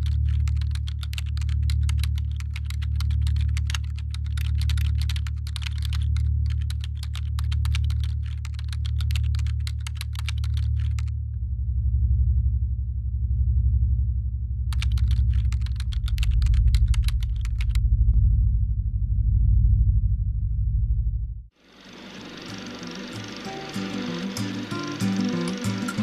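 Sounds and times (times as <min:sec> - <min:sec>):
keyboard typing clicks: 0:00.0 - 0:11.1, 0:14.7 - 0:17.8
low droning music: 0:00.0 - 0:26.0.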